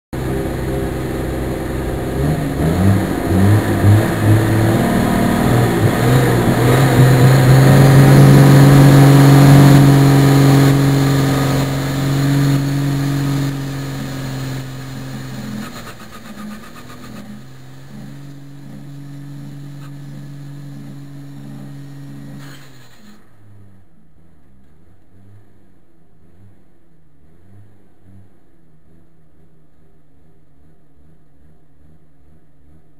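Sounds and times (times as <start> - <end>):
tractor diesel engine: 0.1 - 23.6.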